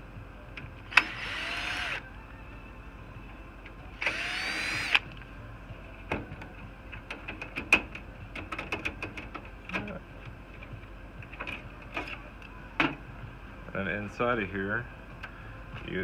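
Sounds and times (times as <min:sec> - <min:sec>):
cordless drill whine: 0:00.9 - 0:02.1, 0:04.0 - 0:05.0
metal clicks and knocks: 0:06.1 - 0:10.0.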